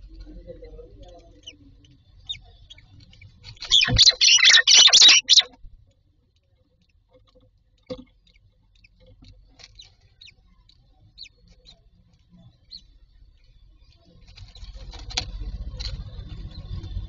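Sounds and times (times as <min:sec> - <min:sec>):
faint high chirps: 0:03.6 - 0:05.5
myna harsh calls: 0:03.6 - 0:05.5.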